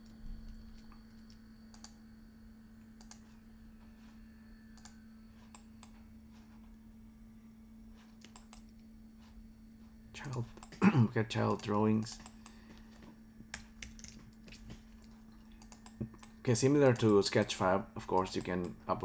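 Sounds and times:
low electrical hum: 0.0 - 19.0
keyboard and mouse clicks: 8.2 - 8.8, 13.5 - 17.4.

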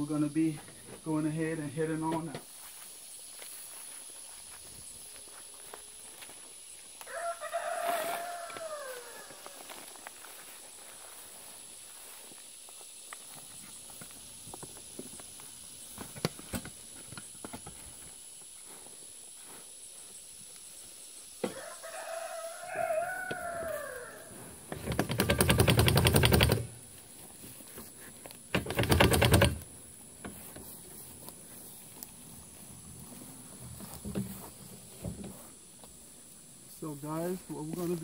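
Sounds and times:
rooster crowing: 7.0 - 9.8, 21.4 - 24.4
wheelbarrow rattling over grass: 24.7 - 27.8, 28.5 - 31.3, 32.6 - 35.5.

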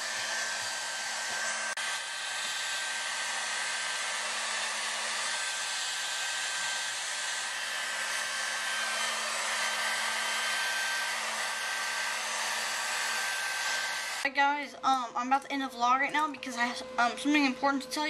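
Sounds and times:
hair dryer blowing: 0.0 - 14.3.

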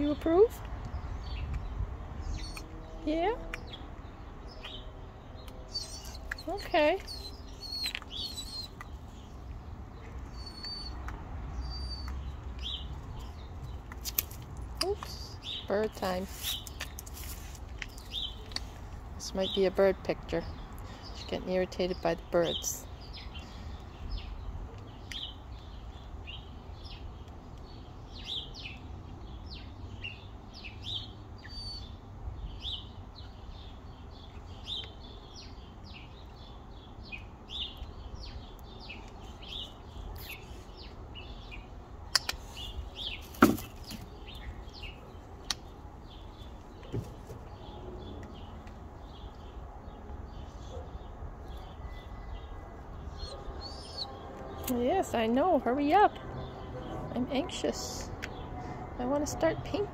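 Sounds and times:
wild birds chirping: 0.0 - 59.9
sharp clicks: 42.1 - 42.4.

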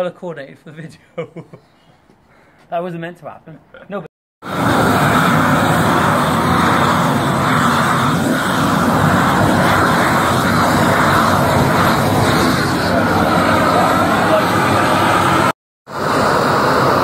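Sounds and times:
gas torch burning loudly: 4.4 - 17.0.

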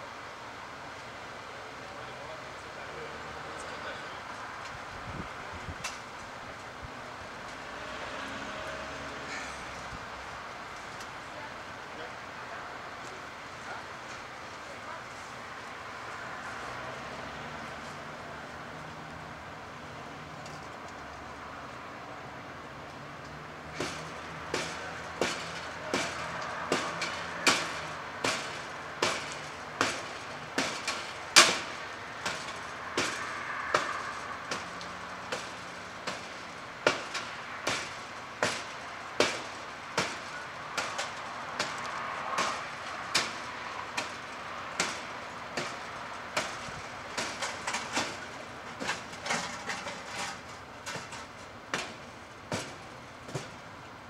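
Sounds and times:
steady background noise: 0.0 - 54.0
hand tool striking wooden deck: 23.8 - 34.7, 35.3 - 40.2, 46.4 - 48.2, 51.7 - 53.5.

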